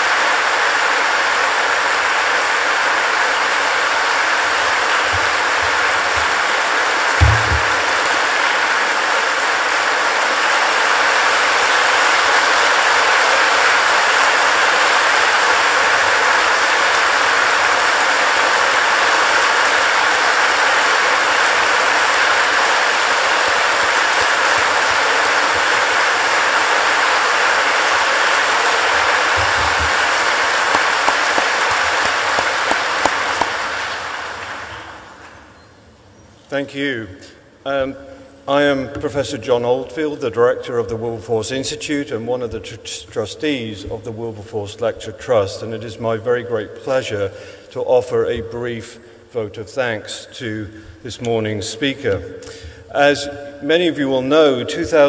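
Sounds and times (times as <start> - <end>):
large audience applauding: 0.0 - 35.6.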